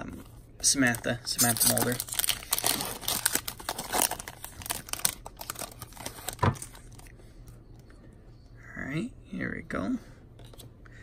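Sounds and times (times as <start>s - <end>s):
cards rustling: 0.7s - 6.8s
foil wrapper tearing and crinkling: 1.3s - 7.0s.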